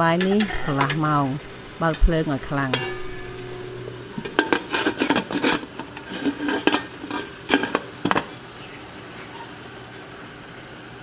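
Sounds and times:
metal pot and lid clanking: 0.0s - 8.2s
steady low hiss: 0.0s - 10.7s.

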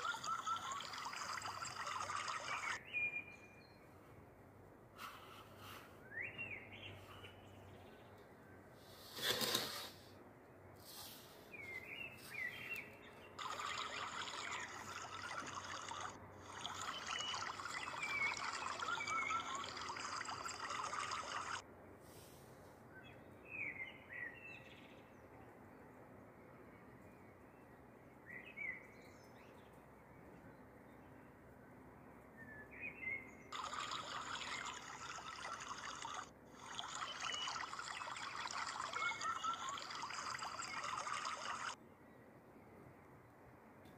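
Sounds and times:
trickling running water: 0.0s - 2.8s, 13.4s - 21.6s, 33.5s - 41.8s
birds chirping: 0.0s - 4.0s, 11.5s - 21.6s, 32.4s - 41.8s.

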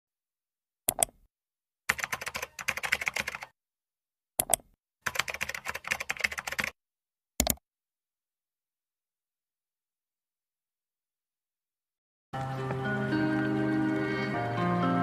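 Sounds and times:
keyboard typing: 0.9s - 1.2s, 1.9s - 3.5s, 4.4s - 6.8s, 7.4s - 7.6s
mouse click: 7.4s - 7.6s.

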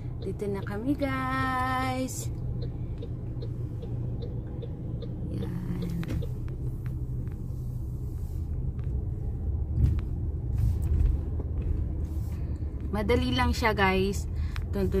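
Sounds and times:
light ticks: 0.0s - 7.5s, 14.4s - 14.8s
car engine and tyre rumble: 0.0s - 15.0s.

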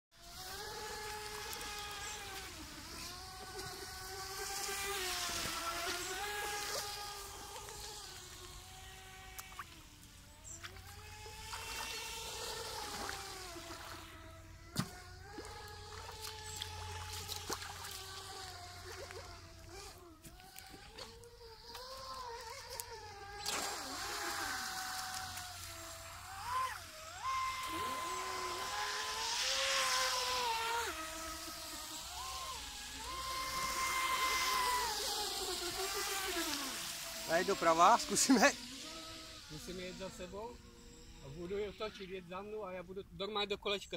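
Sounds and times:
feet wading through water: 0.2s - 37.4s
model boat motor whining: 0.2s - 43.0s
water spray hiss: 27.2s - 38.6s.

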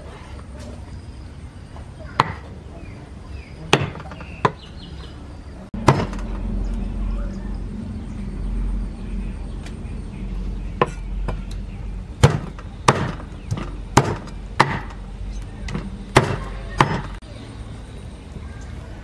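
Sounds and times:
cleaver chopping chicken on wood: 12.2s - 14.9s.

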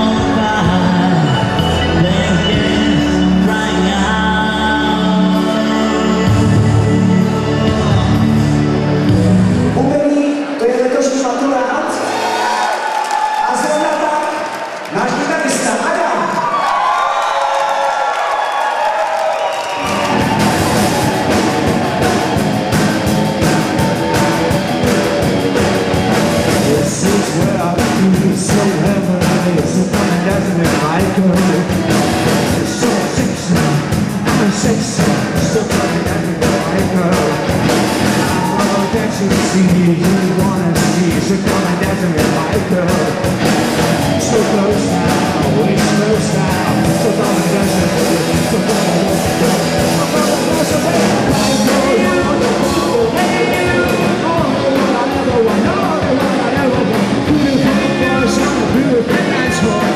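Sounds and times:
vocals: 0.0s - 18.1s, 19.7s - 59.9s
electric guitars: 18.9s - 59.9s
drum kit beat: 19.7s - 59.9s.

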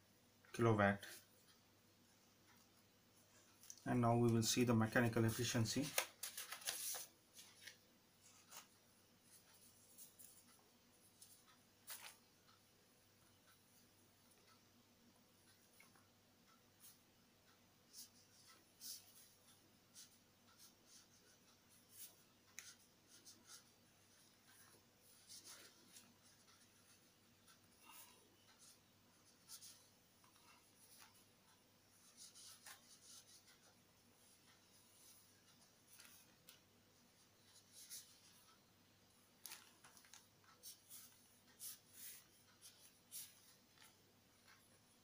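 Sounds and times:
marker scratching on paper: 32.0s - 33.7s.

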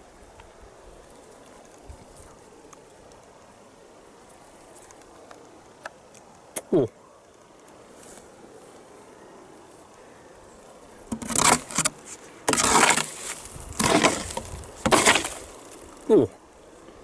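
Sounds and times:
spruce boughs rustling and scraping: 0.8s - 6.5s, 7.2s - 17.0s.

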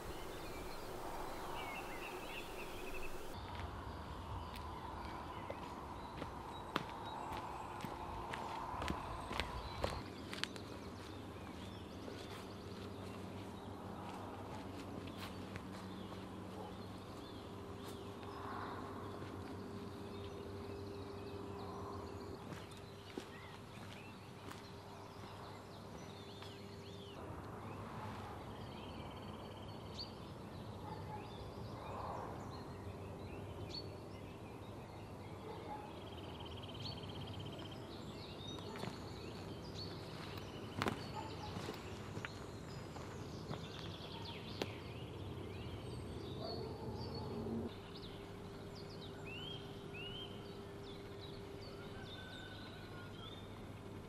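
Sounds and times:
songbirds chirping and singing: 0.0s - 3.4s, 28.4s - 54.0s
steady low hum: 0.0s - 3.4s.

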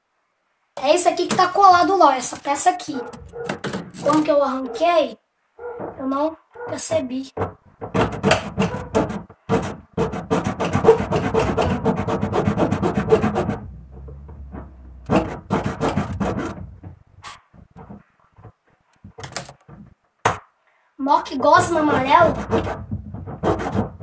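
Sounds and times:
scraping on plastic tub: 7.5s - 19.9s.

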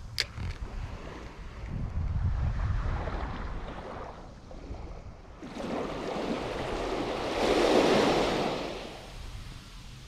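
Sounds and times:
wind rumble on microphone: 0.0s - 10.0s
small waves breaking on beach: 2.3s - 10.0s.

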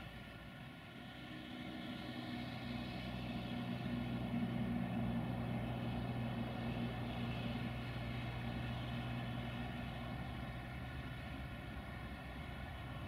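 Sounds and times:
train diesel engine droning: 0.0s - 13.0s.

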